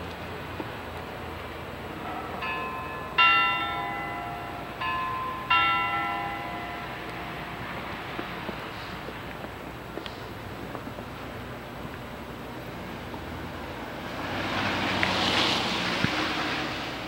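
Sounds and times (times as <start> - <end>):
bell ding-dong: 2.0 - 7.6.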